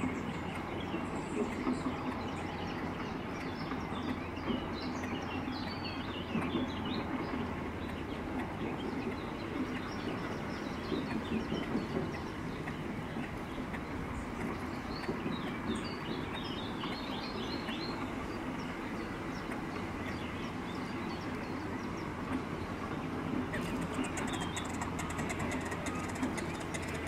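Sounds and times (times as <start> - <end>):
low outdoor rumble: 0.0 - 27.0
small birds chirping: 0.4 - 27.0
rapid fine clicking: 23.5 - 27.0.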